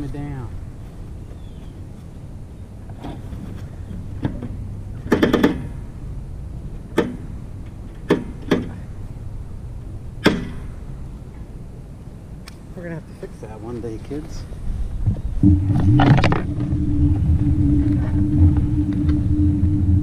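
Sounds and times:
steady low rumble: 0:00.0 - 0:20.0
sharp knocks and clanks: 0:03.9 - 0:05.8, 0:06.9 - 0:08.8, 0:10.2 - 0:10.8.

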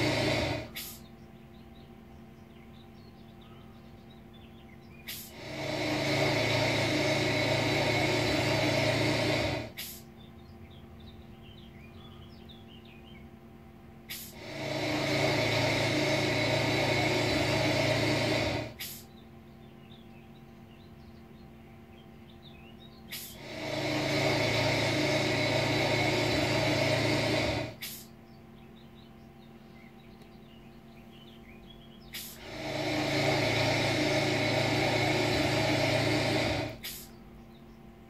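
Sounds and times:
mechanical tamping noise: 0:00.0 - 0:01.0, 0:05.1 - 0:10.0, 0:14.1 - 0:19.0, 0:23.1 - 0:28.1, 0:32.2 - 0:37.1
steady low hum: 0:00.0 - 0:38.0
faint bird-like chirps: 0:00.8 - 0:05.3, 0:28.0 - 0:32.4.

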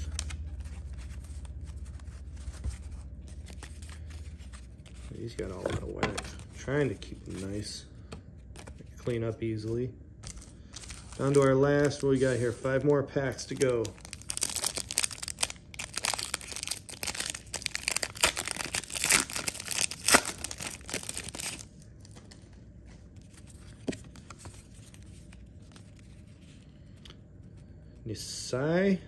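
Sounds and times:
wrapper crinkling: 0:10.3 - 0:22.2.

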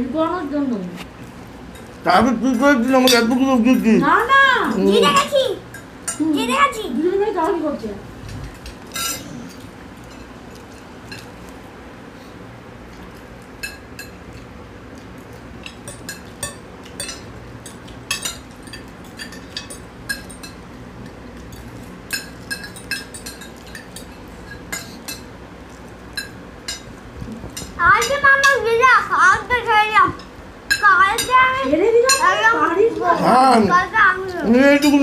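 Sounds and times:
cutlery clinking on glass plates: 0:02.9 - 0:03.4, 0:08.6 - 0:10.3, 0:15.6 - 0:20.6, 0:21.4 - 0:25.3.

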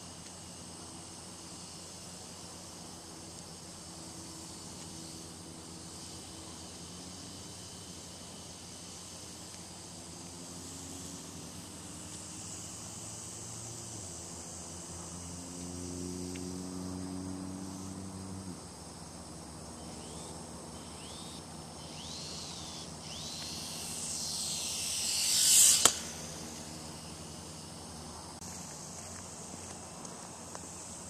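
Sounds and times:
insects chirping: 0:00.0 - 0:31.0
small electric motor whining: 0:19.8 - 0:28.2.

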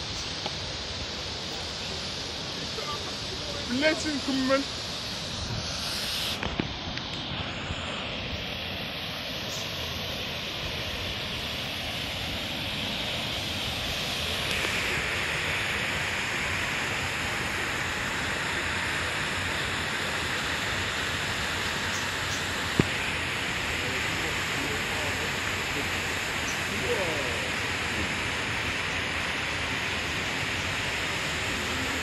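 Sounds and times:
waterfall rushing: 0:00.0 - 0:06.5, 0:08.2 - 0:32.0.

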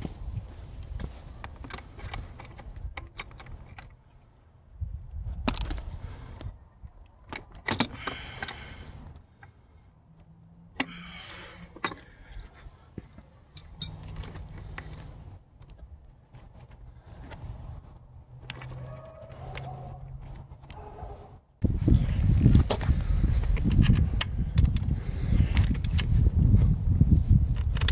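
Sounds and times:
metal tools clicking and clinking: 0:13.5 - 0:15.7.

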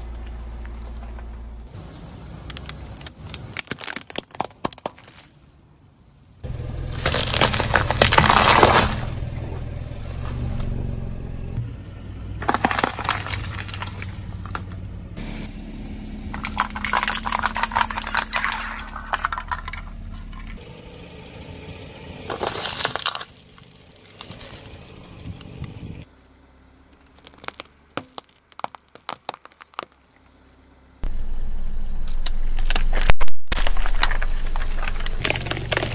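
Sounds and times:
car engine rumble: 0:00.0 - 0:04.6, 0:05.6 - 0:35.9
tyre crushing objects: 0:06.9 - 0:09.2, 0:12.4 - 0:14.7, 0:27.1 - 0:30.1, 0:32.8 - 0:35.9
plastic cups being flattened: 0:16.3 - 0:20.6, 0:32.5 - 0:35.9.

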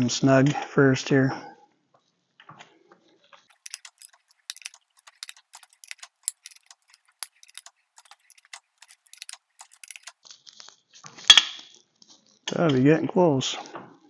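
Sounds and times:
socket ratchet clicking: 0:03.5 - 0:10.1.

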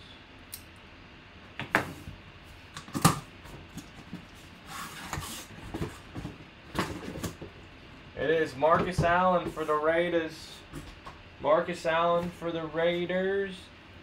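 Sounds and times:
cardboard box rustling and knocking: 0:05.1 - 0:07.6.

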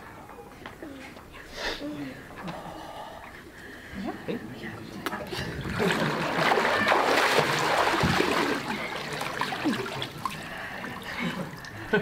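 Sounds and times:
water splashing and sloshing: 0:04.6 - 0:12.0.

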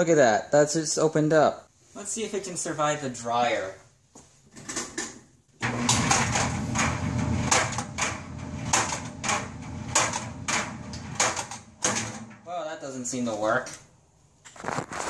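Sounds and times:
clothes dryer humming: 0:05.6 - 0:12.5.

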